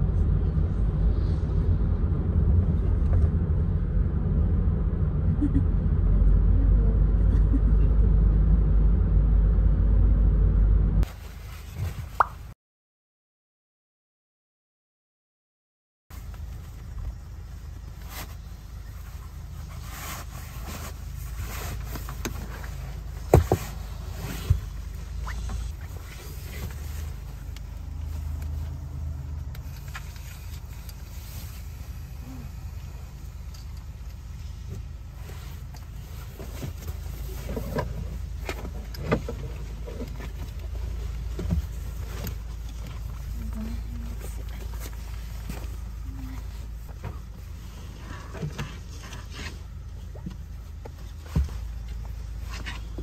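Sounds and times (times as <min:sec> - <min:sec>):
steady low hum: 0:00.0 - 0:11.1
low vehicle rumble: 0:00.0 - 0:12.6, 0:16.1 - 0:53.0
sharp knocks and thuds: 0:23.2 - 0:24.8.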